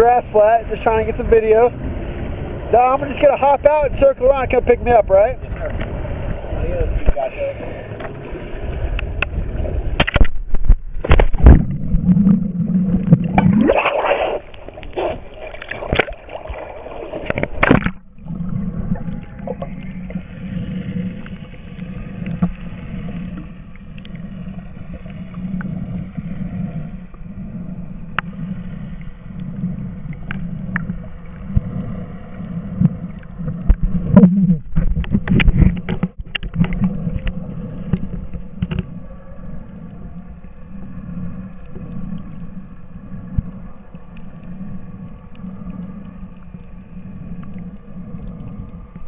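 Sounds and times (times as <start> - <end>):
motorboat engine hum underwater: 0.0 - 49.0
water splashing: 0.0 - 49.0
muffled underwater hiss: 11.3 - 49.0.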